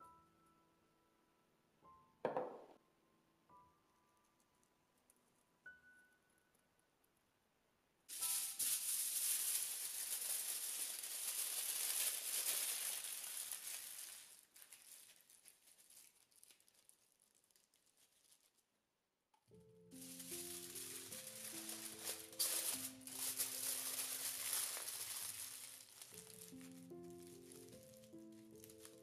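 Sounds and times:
aluminium foil crinkling: 8.1s - 18.8s, 19.9s - 29.0s.

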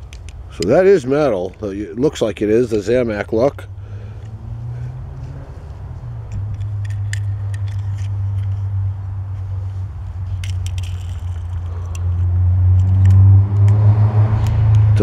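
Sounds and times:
steady low hum: 0.0s - 13.6s
metal toy clicking: 6.3s - 8.6s, 10.4s - 13.2s.

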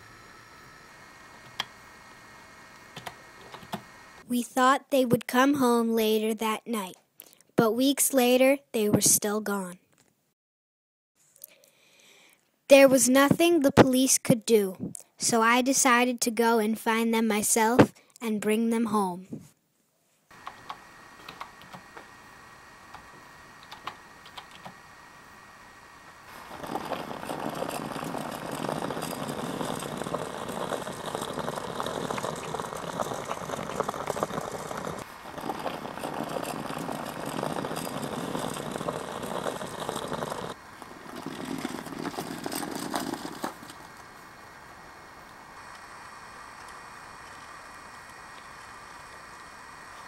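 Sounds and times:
suitcase wheels rumbling on sidewalk: 26.3s - 44.3s.

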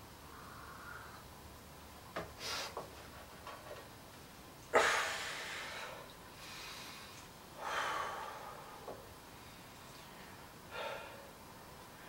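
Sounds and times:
man exhaling hard and gasping: 4.7s - 6.8s.

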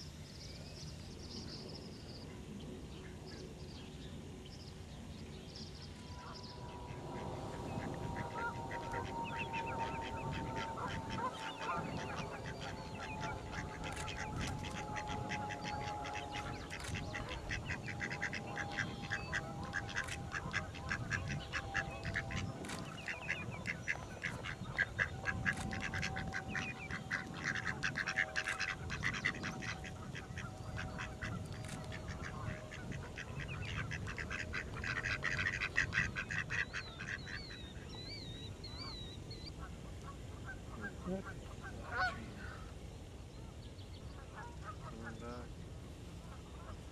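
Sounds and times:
steady tone sliding down: 5.9s - 21.2s
ducks and geese calling: 5.9s - 45.6s.

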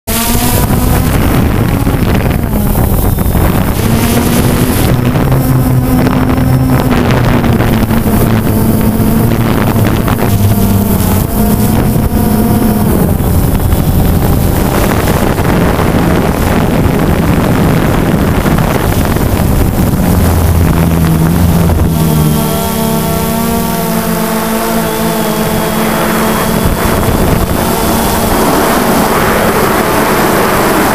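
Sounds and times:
drone motors humming: 0.1s - 30.9s
wind buffeting microphone: 0.1s - 30.9s.

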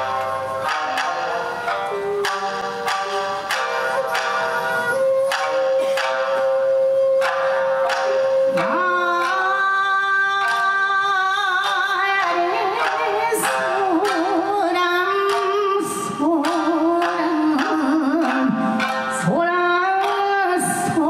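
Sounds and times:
shamisen ensemble plucking: 0.0s - 21.0s
woman singing folk song: 8.3s - 21.0s.

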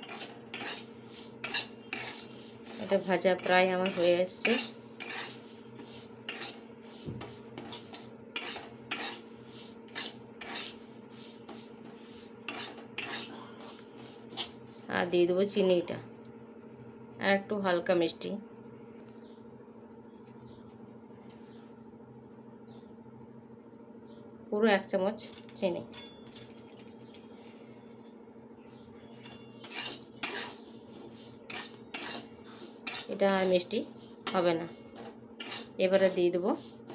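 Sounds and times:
metal spatula scraping a pan: 0.0s - 14.9s, 29.2s - 36.9s.

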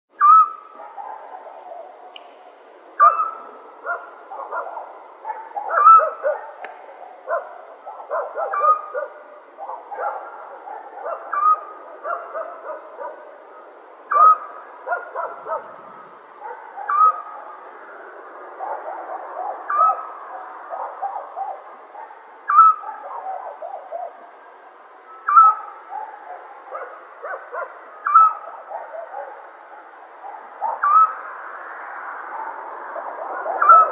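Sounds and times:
clear pitched animal call: 0.2s - 0.6s, 22.5s - 22.8s, 25.2s - 25.7s, 30.8s - 31.2s.

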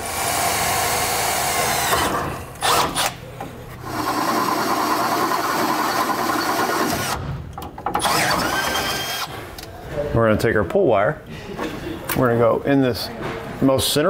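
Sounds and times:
cordless drill boring holes: 0.0s - 3.2s, 3.8s - 7.2s, 8.0s - 9.4s.

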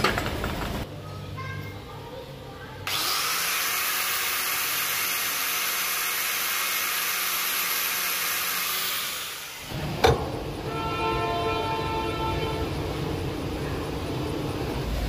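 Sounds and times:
wire wheel grinder hissing on steel: 2.9s - 9.8s.

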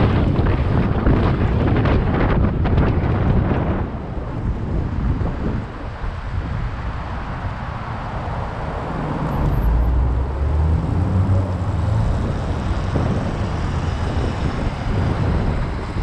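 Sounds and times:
city traffic noise: 0.0s - 16.0s
wind rumble on microphone: 0.0s - 16.0s
cars passing close by: 3.6s - 16.0s.

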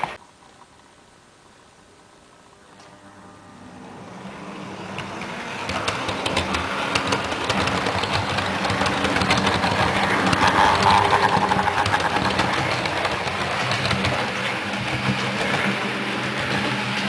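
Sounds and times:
model train motor whirring: 4.2s - 17.0s
wheels clicking over track: 4.4s - 17.0s.

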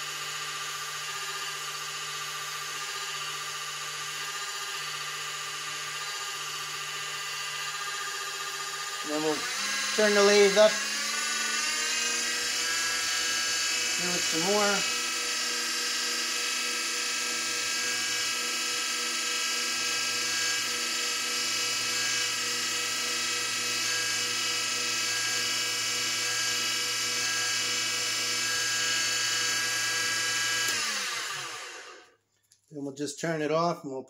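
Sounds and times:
lathe motor whining: 0.0s - 32.1s.

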